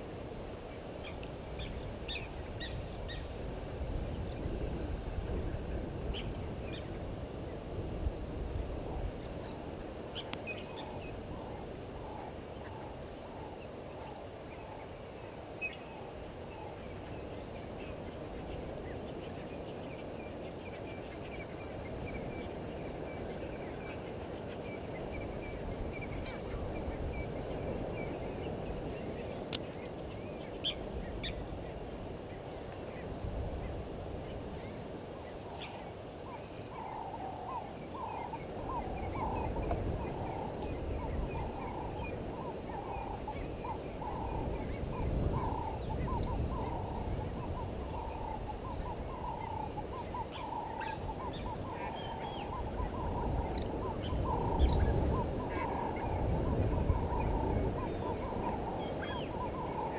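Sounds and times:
birds calling: 33.7s - 59.9s.

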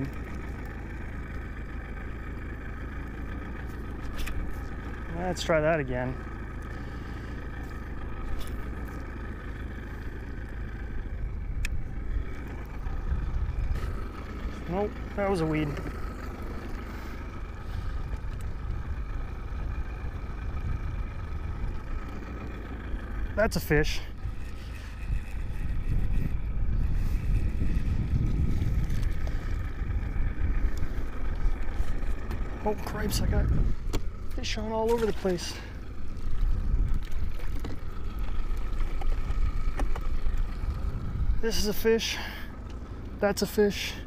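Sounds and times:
outboard motor running: 0.0s - 44.0s
wind and water rumble: 0.0s - 44.0s
wind buffeting microphone: 11.2s - 14.0s, 24.2s - 34.4s, 36.0s - 41.5s.

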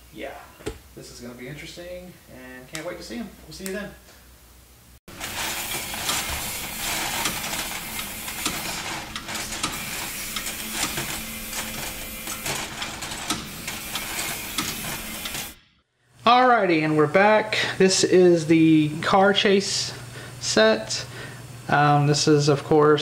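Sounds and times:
mechanical clattering: 5.1s - 15.6s.

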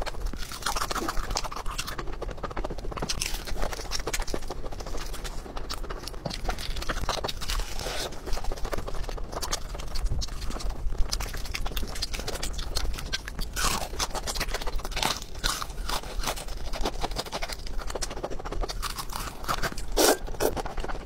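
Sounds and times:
crunching fried chicken: 0.0s - 21.0s
slurping noodles: 19.4s - 21.0s.

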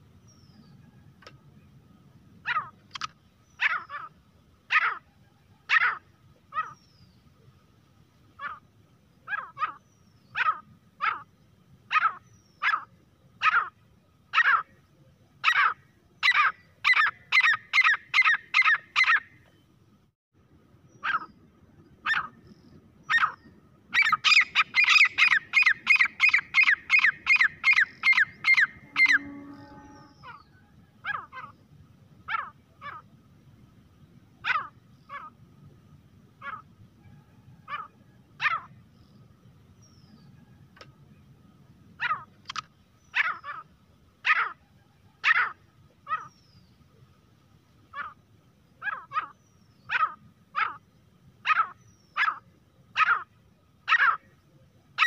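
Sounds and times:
bird calling short sharp calls: 23.0s - 31.6s.

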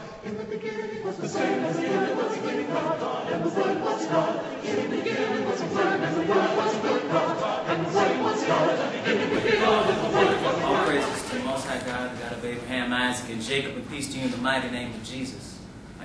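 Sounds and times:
choir singing: 0.0s - 12.5s.

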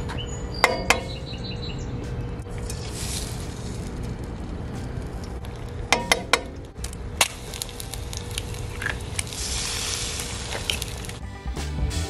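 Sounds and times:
eggs sizzling in a pan: 2.4s - 11.2s.

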